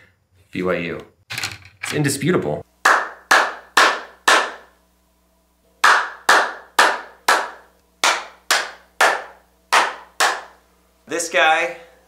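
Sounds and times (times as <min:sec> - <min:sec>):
hand claps with ringing echo: 0:02.8 - 0:04.7, 0:05.8 - 0:10.6.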